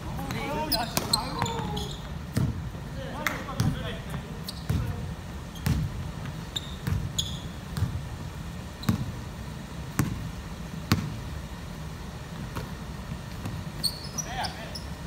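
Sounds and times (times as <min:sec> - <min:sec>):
basketball bouncing on wooden floor: 0:00.2 - 0:02.6, 0:03.6 - 0:05.0, 0:05.6 - 0:09.2, 0:09.9 - 0:10.3, 0:10.9 - 0:11.2.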